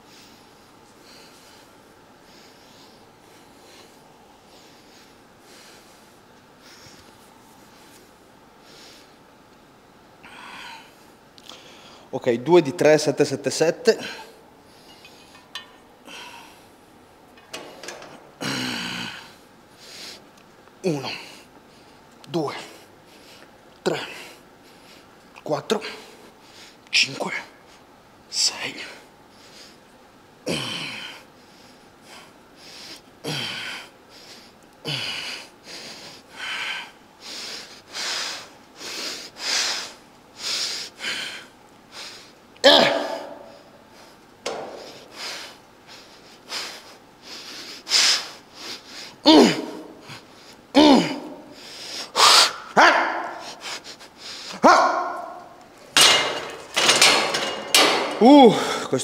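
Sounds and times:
man panting: 17.5 - 20.2, 30.5 - 56.2, 57.0 - 59.0
man exhaling with grunts: 18.4 - 19.4, 30.5 - 31.2, 49.2 - 51.6, 58.2 - 58.9
sharp hissing breaths: 30.8 - 42.5, 43.1 - 50.7, 51.3 - 54.6.

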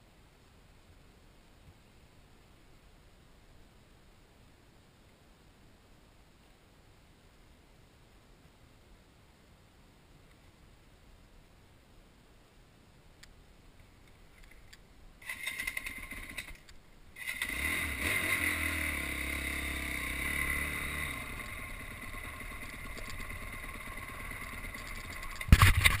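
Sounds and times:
small engine starting and running: 15.2 - 16.6, 17.2 - 26.0
knocks and rubbing on microphone: 25.4 - 26.0.

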